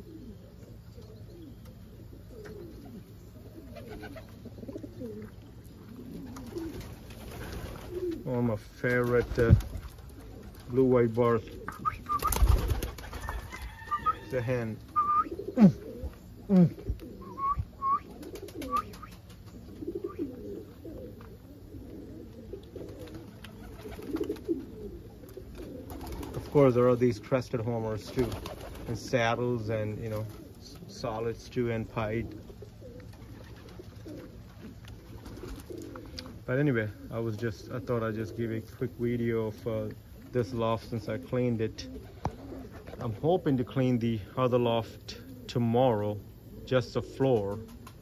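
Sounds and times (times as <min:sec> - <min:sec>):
pigeons cooing: 0:00.0 - 0:48.0
loud falling pigeon call: 0:11.6 - 0:21.2.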